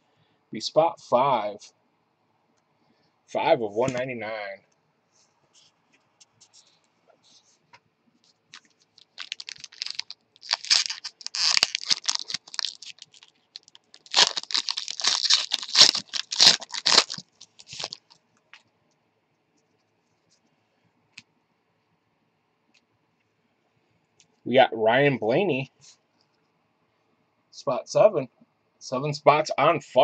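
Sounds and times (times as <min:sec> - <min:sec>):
foil wrapper crinkling and tearing: 0:08.5 - 0:18.2.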